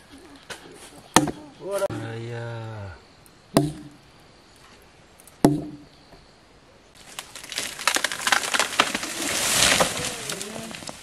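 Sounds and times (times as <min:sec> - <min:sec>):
axe striking wood: 0:01.2 - 0:02.0, 0:03.6 - 0:04.0, 0:05.4 - 0:05.9
leaves rustling: 0:06.9 - 0:11.0
tree falling with branches snapping: 0:07.0 - 0:11.0.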